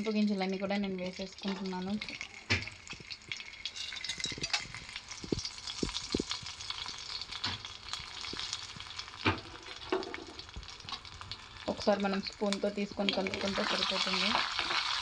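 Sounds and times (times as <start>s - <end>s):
seeds sizzling in hot oil: 0.0s - 15.0s.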